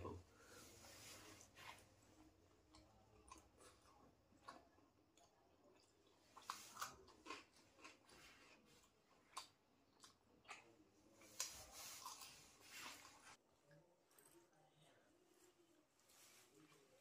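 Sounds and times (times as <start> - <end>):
person chewing: 1.2 - 13.4.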